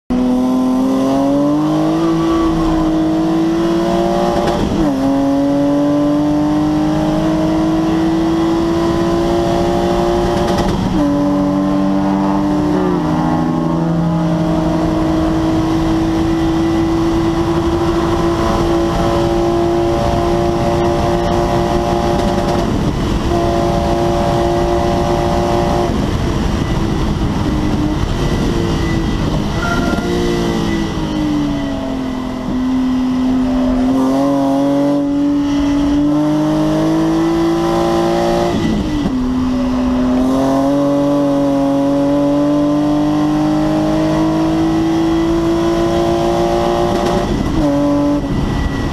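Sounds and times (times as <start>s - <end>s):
car engine accelerating: 0.1s - 48.9s.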